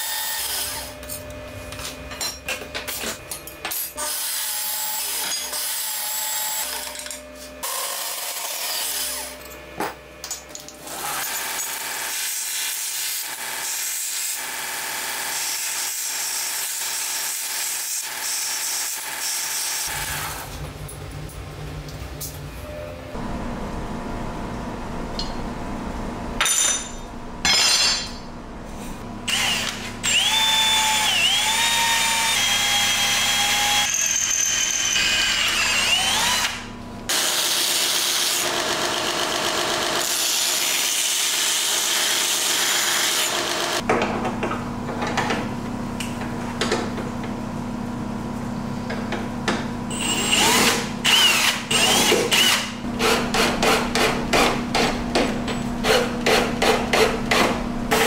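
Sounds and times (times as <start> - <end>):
power tool motor cutting metal: 3.7 - 9.4, 10.7 - 20.5, 29.3 - 43.8, 49.9 - 55.0, 55.8 - 58.0.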